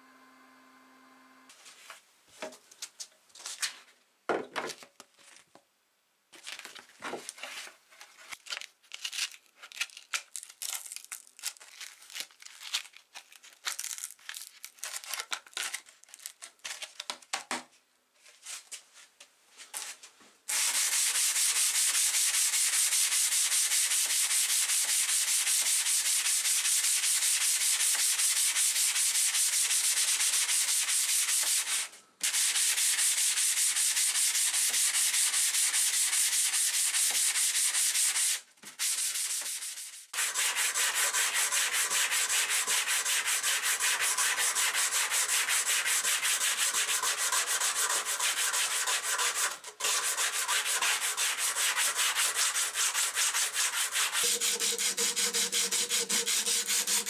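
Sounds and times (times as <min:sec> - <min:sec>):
sandpaper rustling and clicks: 0:06.4 - 0:16.9
hand sanding hiss on metal: 0:20.5 - 0:57.0.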